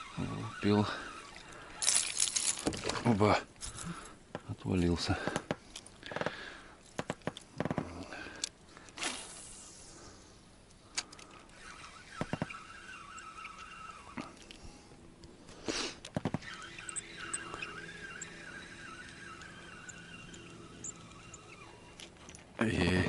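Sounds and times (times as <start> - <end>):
fishing reel whirring: 0.0 - 2.6, 11.1 - 14.8, 16.3 - 22.4.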